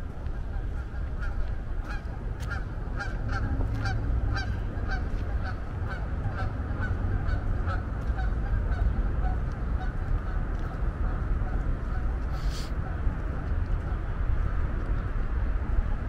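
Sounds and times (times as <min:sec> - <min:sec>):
geese honking: 0:00.3 - 0:10.4.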